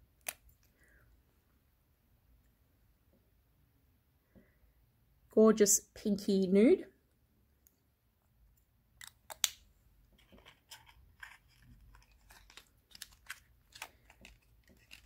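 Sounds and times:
packaging rustling: 0:10.2 - 0:15.0.

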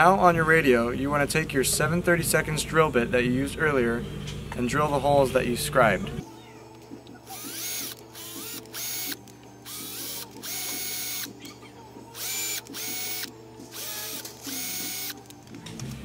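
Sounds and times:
cordless drill whining: 0:07.3 - 0:11.4, 0:12.2 - 0:15.3.

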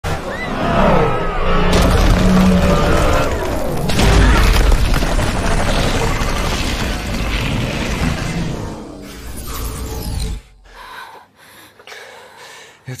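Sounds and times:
deep boom: 0:01.7 - 0:08.8
sliding whines: 0:05.1 - 0:10.6.

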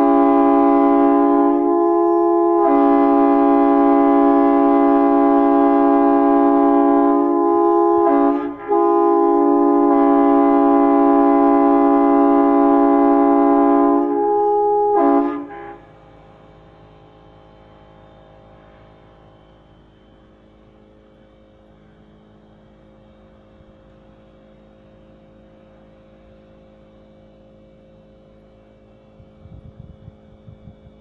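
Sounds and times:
multi-chime air horn blasts: 0:00.0 - 0:16.4.

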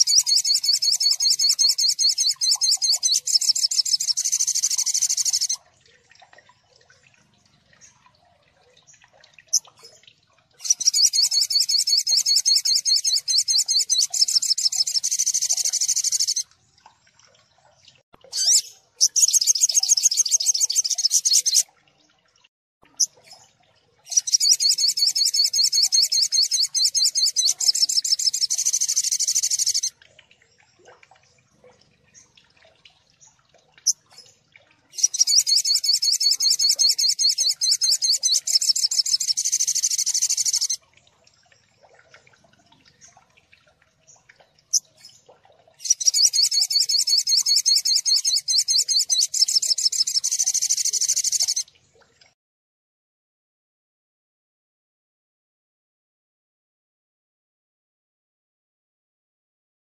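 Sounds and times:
rapid high rattling birdsong: 0:00.0 - 0:05.6, 0:07.4 - 0:16.4, 0:17.4 - 0:21.6, 0:23.0 - 0:29.9, 0:33.1 - 0:40.8, 0:44.0 - 0:51.6.

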